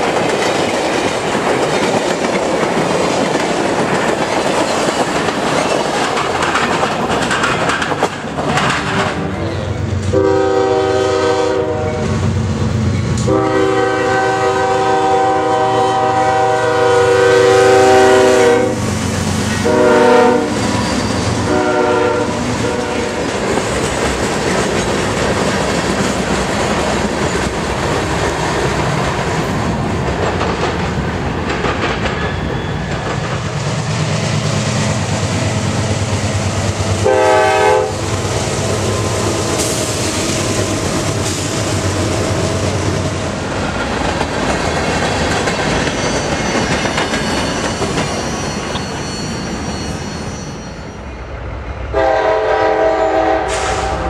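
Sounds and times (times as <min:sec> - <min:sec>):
wheels clacking over rail joints: 0:00.0 - 0:10.1, 0:22.6 - 0:38.4, 0:39.0 - 0:50.0
freight cars rolling on rails: 0:00.0 - 0:13.5, 0:14.1 - 0:51.6
locomotive horn blasts: 0:10.1 - 0:12.2, 0:13.2 - 0:18.8, 0:19.6 - 0:20.7, 0:21.4 - 0:23.3, 0:37.0 - 0:38.0, 0:51.9 - 0:54.0.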